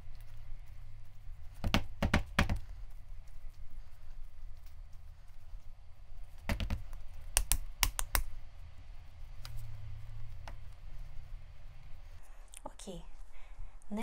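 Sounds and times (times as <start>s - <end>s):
hands patting clay: 1.4s - 8.3s.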